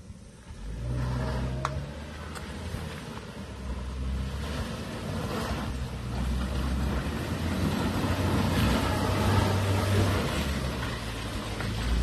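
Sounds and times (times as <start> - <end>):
suv engine pulling hard uphill: 0.0 - 12.0.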